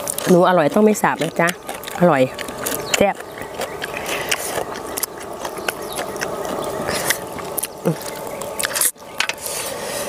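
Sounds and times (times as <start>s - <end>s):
crunchy chewing: 0.0s - 10.0s.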